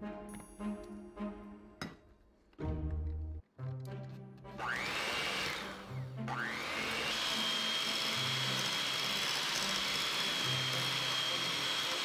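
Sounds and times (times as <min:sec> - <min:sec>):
background music: 0:00.0 - 0:12.0
electric hand mixer whirring: 0:04.6 - 0:12.0.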